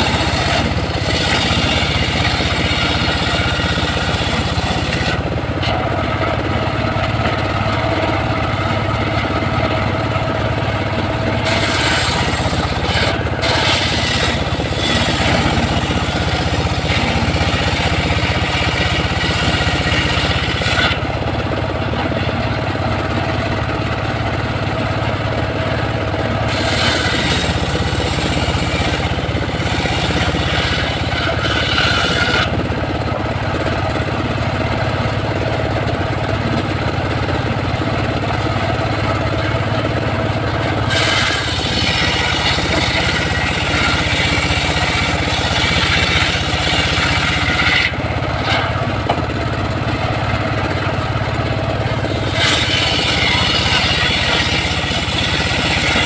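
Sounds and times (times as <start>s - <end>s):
saw blade cutting log: 0.0s - 56.0s
sawmill engine running: 0.0s - 56.0s.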